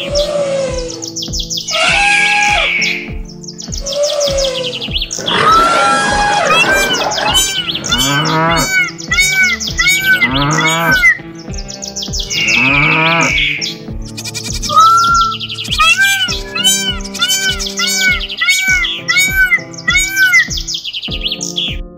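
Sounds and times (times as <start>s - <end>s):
short bird-like calls: 0.0s - 21.8s
music with steady beat: 0.0s - 21.9s
cartoon cow mooing: 1.8s - 2.7s, 5.2s - 11.2s, 12.5s - 13.4s, 15.8s - 20.5s.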